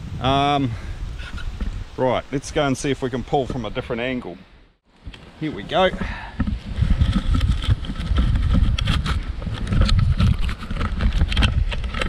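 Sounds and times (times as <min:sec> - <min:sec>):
camera handling rumble: 0:05.0 - 0:12.0.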